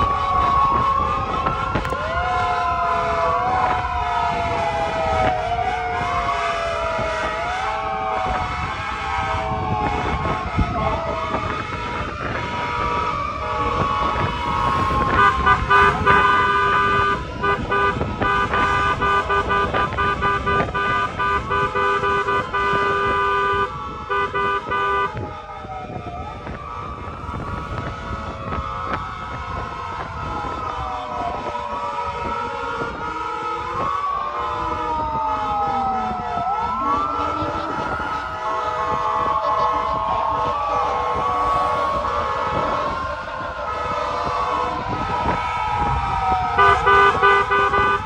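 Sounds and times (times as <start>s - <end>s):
engines rumbling: 0.0s - 48.0s
fire truck sirens wailing: 0.0s - 48.0s
vehicle horns honking: 14.8s - 25.2s, 46.6s - 48.0s.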